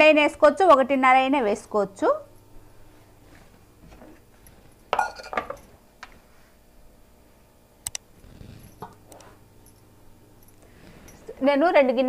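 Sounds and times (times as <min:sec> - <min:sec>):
clicks and knocks of vessels: 0:04.9 - 0:05.7
kitchen vessels clattering: 0:04.9 - 0:05.7.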